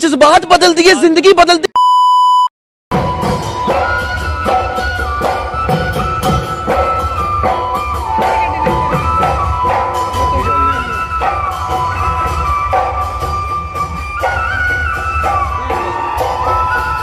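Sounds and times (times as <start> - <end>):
drums beating steady rhythm: 2.9 - 17.0
wind instrument melody: 2.9 - 17.0.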